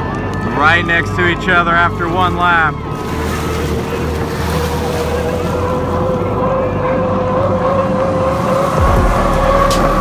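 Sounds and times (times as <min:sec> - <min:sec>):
turbine engines whining: 0:00.0 - 0:10.0
rushing noise: 0:04.5 - 0:10.0.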